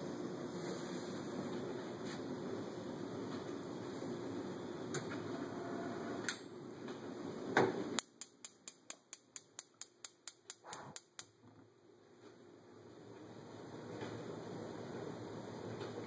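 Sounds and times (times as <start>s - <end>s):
gas burner flame hiss: 0.0s - 2.8s.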